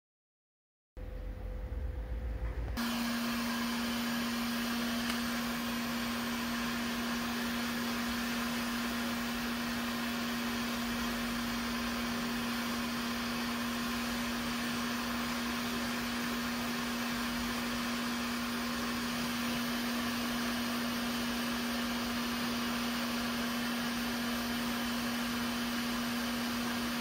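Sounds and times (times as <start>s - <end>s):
heat gun blowing air: 2.8s - 12.3s.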